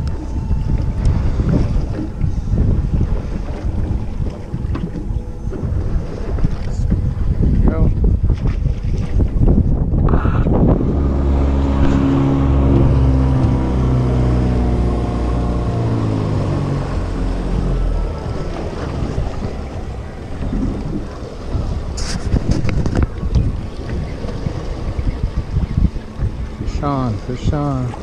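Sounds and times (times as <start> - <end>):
boat engine running: 0.0 - 28.0
wind noise on microphone: 0.0 - 28.0.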